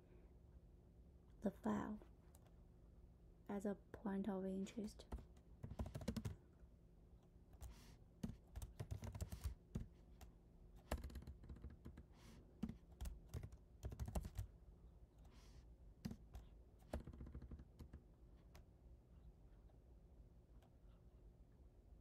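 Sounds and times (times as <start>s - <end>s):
typing on computer keyboard: 5.1s - 6.4s, 7.6s - 9.9s, 10.8s - 14.5s, 16.0s - 18.6s.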